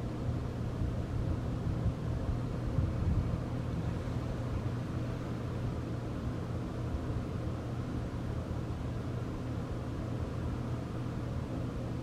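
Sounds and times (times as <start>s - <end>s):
street traffic rumble: 1.2s - 6.0s.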